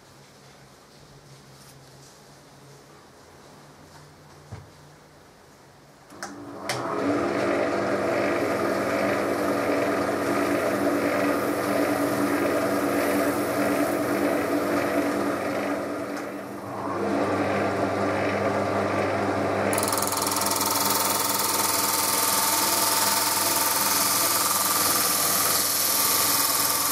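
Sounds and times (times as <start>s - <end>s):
power tool switch clicks: 6.1s - 6.9s
power tool motor running: 6.3s - 26.9s.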